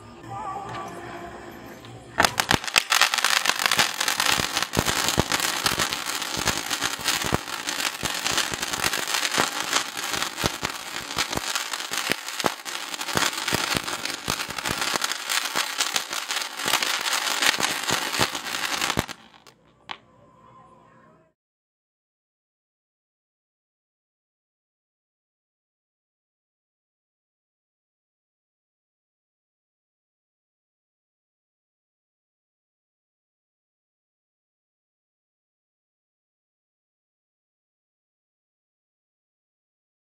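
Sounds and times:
firework crackling: 2.2s - 19.5s
fuse burning: 2.2s - 19.5s.

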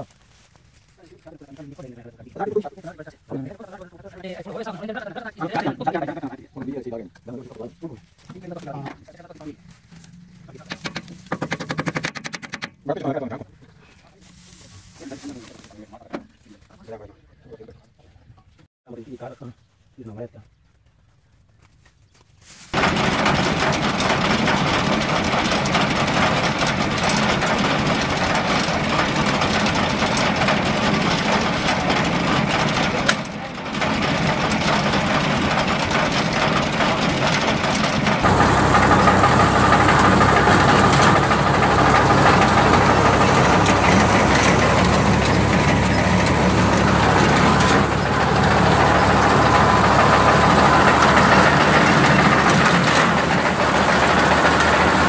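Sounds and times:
tractor diesel engine running: 7.6s - 12.7s, 22.7s - 55.0s.

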